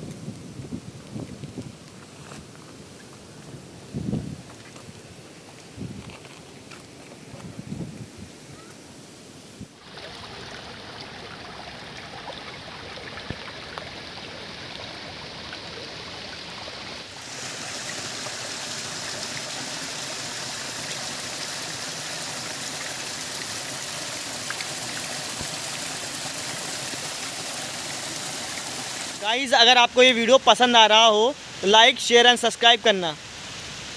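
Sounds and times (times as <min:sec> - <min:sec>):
stream running over rocks: 0:00.0 - 0:08.2, 0:08.8 - 0:33.9
raindrops on water: 0:21.8 - 0:29.3.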